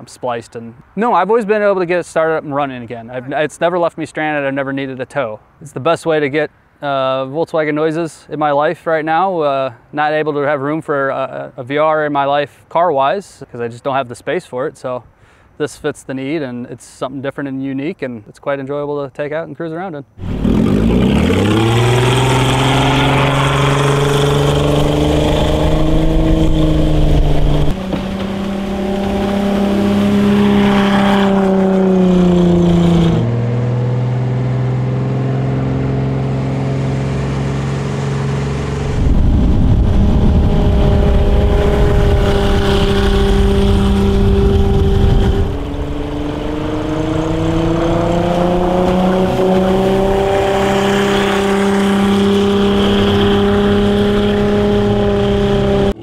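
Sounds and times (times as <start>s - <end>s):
loud rushing noise: 38.7s - 50.1s.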